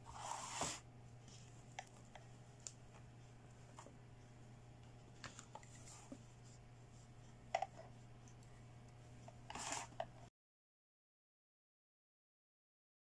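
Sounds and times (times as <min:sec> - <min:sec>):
steady low hum: 0:00.0 - 0:10.3.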